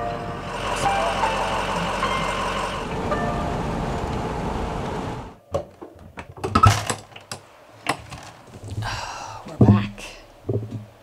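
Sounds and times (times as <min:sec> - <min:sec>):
truck road noise from inside: 0:00.0 - 0:05.4
knocks and clatter: 0:10.5 - 0:10.9.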